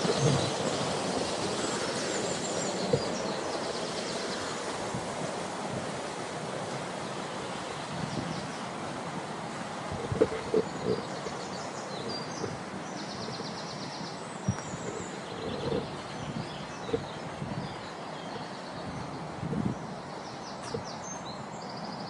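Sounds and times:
small birds trilling: 0:00.0 - 0:04.8, 0:09.9 - 0:22.0
outdoor background rush: 0:00.0 - 0:22.0.

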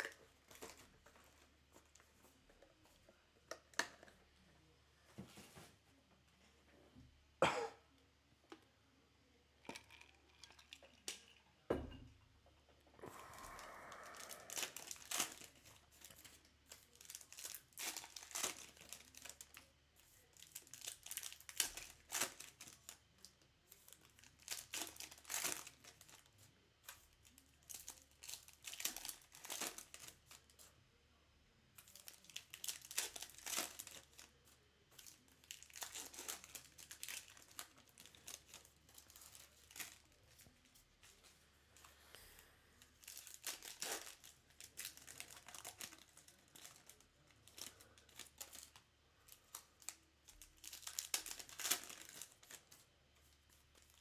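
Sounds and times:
foil wrappers crinkling and tearing: 0:00.0 - 0:02.0, 0:13.1 - 0:30.7, 0:31.8 - 0:41.2, 0:42.8 - 0:54.0.

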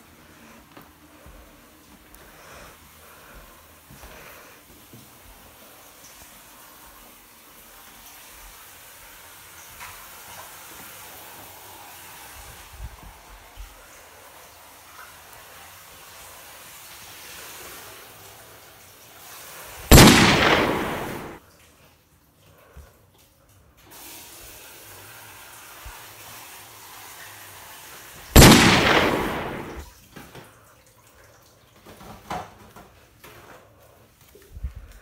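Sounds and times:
low hiss: 0:00.0 - 0:21.4, 0:23.9 - 0:29.8
loud burst of noise: 0:19.9 - 0:21.4, 0:28.4 - 0:29.8.

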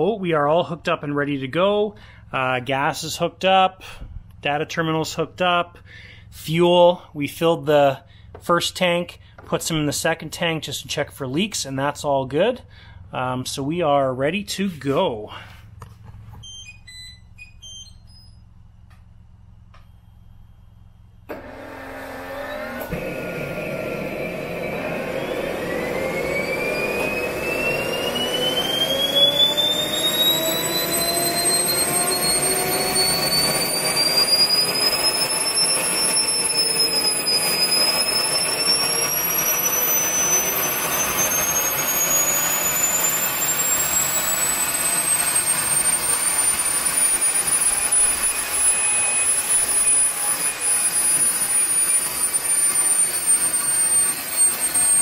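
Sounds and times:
jet turbine whine: 0:18.8 - 0:55.0.

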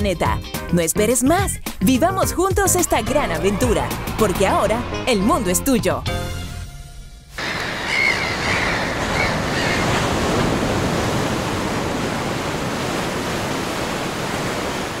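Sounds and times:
gull cries: 0:07.4 - 0:10.2
ocean surf washing on beach: 0:07.4 - 0:15.0.

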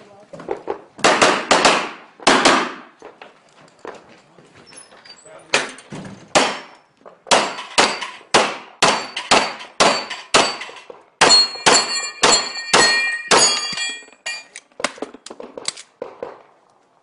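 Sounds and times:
rapid pistol fire: 0:01.0 - 0:02.9
steel plates clanging: 0:08.9 - 0:14.7.

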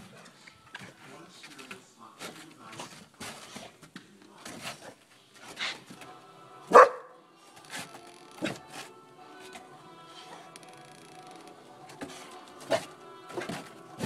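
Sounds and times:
dog barking: 0:06.7 - 0:07.2.

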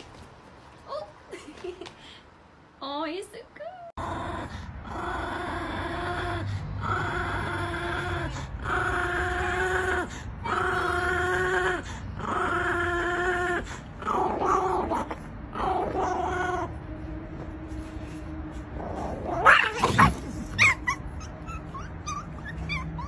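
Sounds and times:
small dog whining growls: 0:04.0 - 0:16.8, 0:18.8 - 0:23.0.

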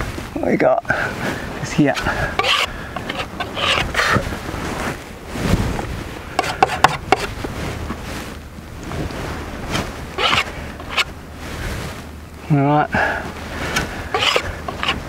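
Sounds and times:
wind rumbling on microphone: 0:00.0 - 0:15.0
painting tools scraping thick paint: 0:01.8 - 0:04.2, 0:06.4 - 0:07.3, 0:10.2 - 0:11.1, 0:13.6 - 0:15.0.

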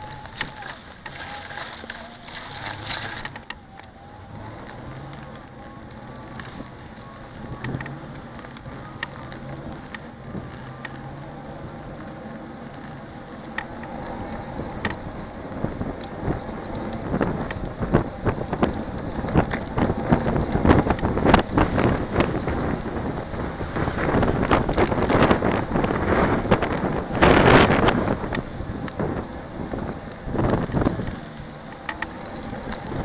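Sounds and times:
steady high whine: 0:00.0 - 0:33.0
wind buffeting microphone: 0:15.5 - 0:31.2.

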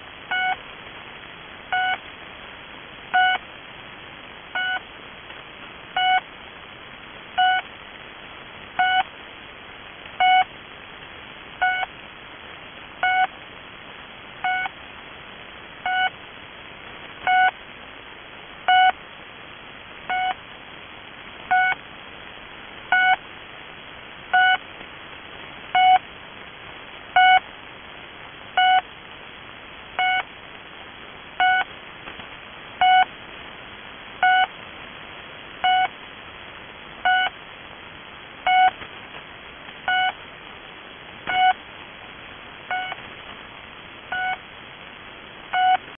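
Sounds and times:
radio band hiss: 0:00.0 - 0:45.9
short radio beep: 0:42.7 - 0:43.0.

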